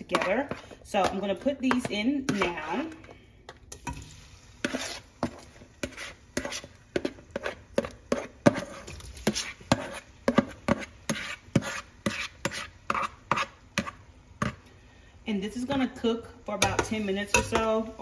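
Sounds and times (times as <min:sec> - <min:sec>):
metal spoon scraping a bowl: 0:04.6 - 0:14.0.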